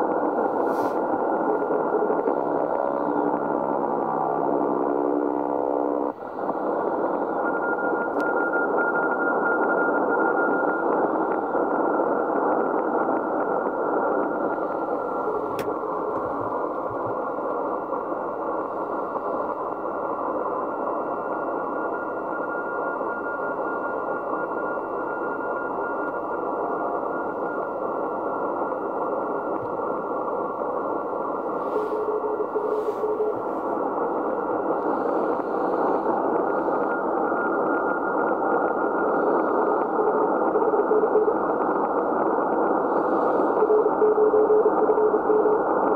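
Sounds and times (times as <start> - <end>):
radio band noise hiss: 0.0 - 45.9
radio click: 0.1 - 8.6, 10.4 - 17.7
faint short tone: 31.5 - 33.7.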